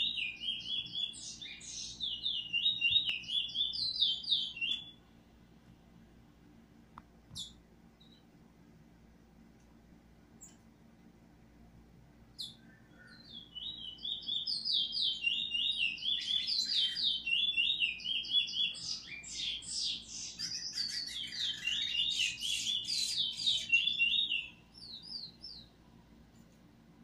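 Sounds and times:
finch singing warbling song: 0.0 - 5.0, 12.4 - 25.8.

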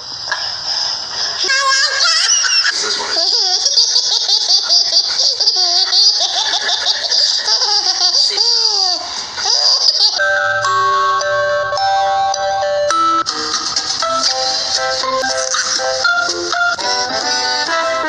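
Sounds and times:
baby laughing: 1.4 - 10.2
music: 10.2 - 18.0.

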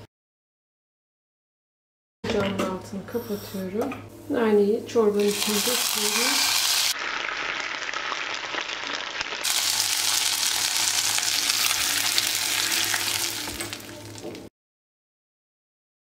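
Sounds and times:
butter sizzling: 5.2 - 14.5.

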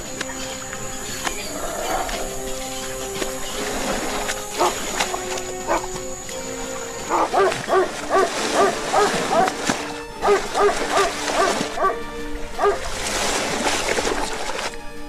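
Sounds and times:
background music: 0.0 - 15.0
dog barking in rapid yelps: 7.1 - 9.6, 10.2 - 12.0, 12.6 - 12.8.

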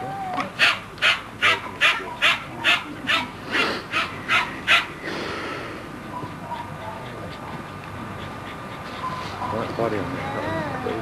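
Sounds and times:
dog barking: 0.6 - 4.9, 6.1 - 7.6, 9.0 - 9.7.

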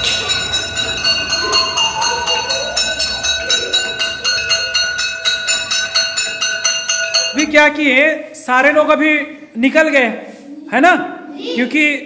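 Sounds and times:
metal bell struck rapidly: 0.0 - 7.8.

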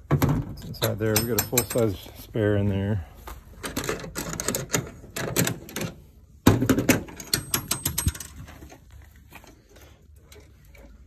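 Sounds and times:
metal latch clicking and rattling: 0.2 - 2.0, 6.7 - 8.4.

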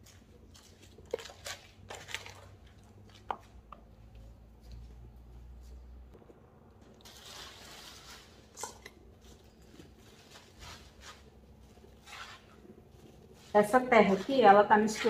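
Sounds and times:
hands scooping potting soil: 0.0 - 4.0, 6.9 - 15.0
plastic bag rustling: 6.8 - 14.4.

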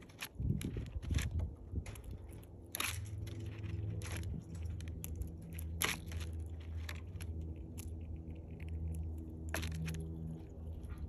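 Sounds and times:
squirrel cracking seed shells: 0.0 - 11.0
steady low hum: 0.0 - 11.0.

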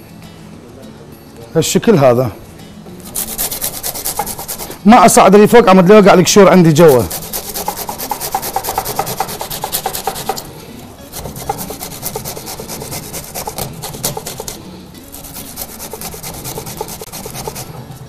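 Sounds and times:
garlic rasping on hand grater: 3.2 - 4.8, 6.8 - 10.5, 11.1 - 17.9.

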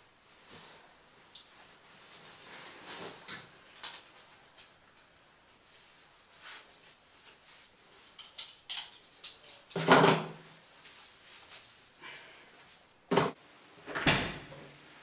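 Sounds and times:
light clicks and rustles: 1.3 - 9.9.

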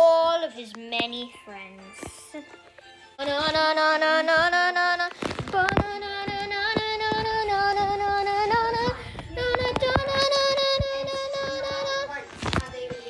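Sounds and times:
child singing long notes: 3.2 - 13.0.

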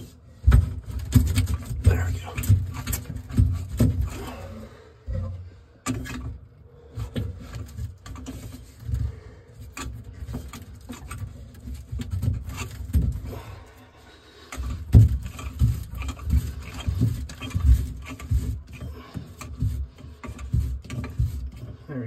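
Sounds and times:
sink drain pipe thumping and rubbing: 14.6 - 21.7.

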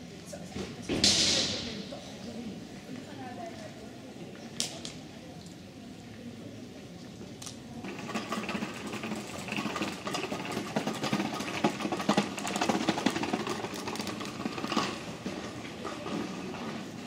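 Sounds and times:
scooter wheels clattering on cobblestones: 7.8 - 17.0.

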